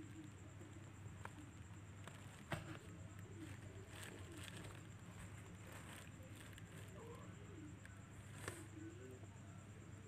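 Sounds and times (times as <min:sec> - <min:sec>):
kittens scratching and rustling: 0:00.0 - 0:08.8
soft low cooing calls: 0:05.8 - 0:10.0.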